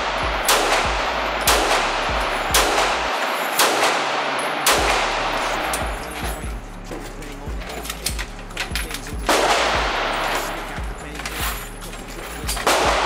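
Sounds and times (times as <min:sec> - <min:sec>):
handgun shots with echo: 0:00.0 - 0:06.4, 0:07.8 - 0:11.4, 0:12.4 - 0:13.0.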